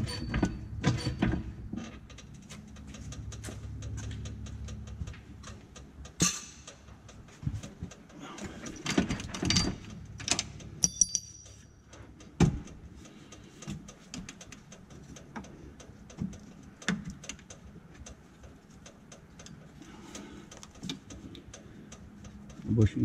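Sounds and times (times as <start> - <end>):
clicks and knocks of metal parts: 0.0 - 21.6
metallic ring: 10.8 - 11.9.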